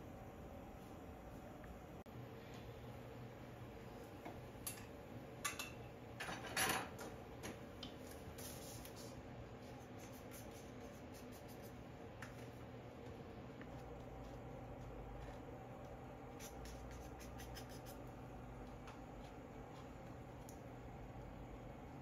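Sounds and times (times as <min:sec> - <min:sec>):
low room hum: 0:00.0 - 0:22.0.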